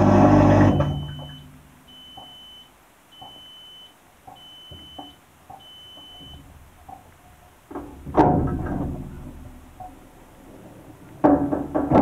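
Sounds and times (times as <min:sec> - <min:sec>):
dishwasher beeping: 0:00.4 - 0:06.6
loud clunk: 0:07.7 - 0:10.0, 0:10.9 - 0:12.0.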